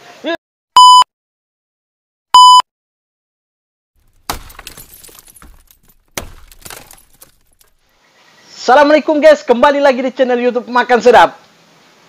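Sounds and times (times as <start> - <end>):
electronic test-tone beep: 0.8 - 1.1, 2.4 - 2.7
crash with scattered clattering: 4.0 - 7.9.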